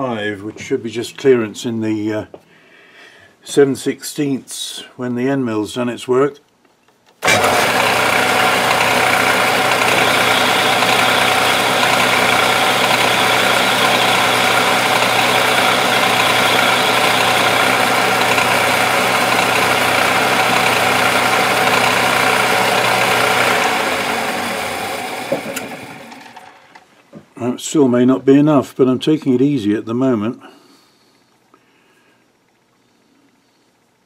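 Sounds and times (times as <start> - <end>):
lathe spinning down: 7.2 - 26.8
metal lathe whirring: 7.2 - 26.8.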